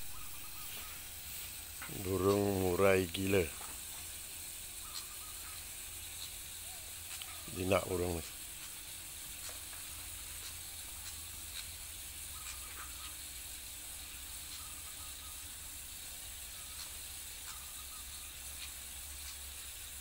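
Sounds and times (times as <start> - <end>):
water trickling over stone: 0.5 - 20.0.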